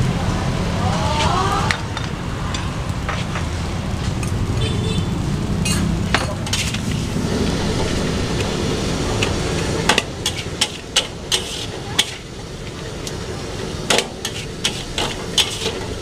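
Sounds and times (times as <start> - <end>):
metal spatula scraping a wok: 5.6 - 8.0, 10.0 - 12.4, 14.2 - 16.0
low rumble: 6.7 - 10.3.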